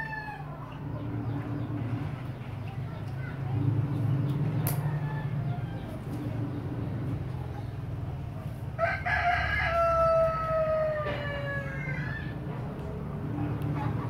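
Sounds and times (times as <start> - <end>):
rooster crowing: 0.0 - 0.7, 4.8 - 6.0, 8.8 - 12.4
steady low hum: 0.0 - 9.1.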